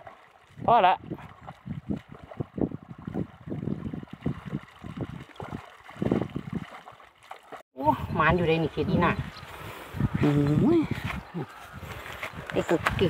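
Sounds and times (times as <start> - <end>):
shallow water sloshing: 0.0 - 7.6.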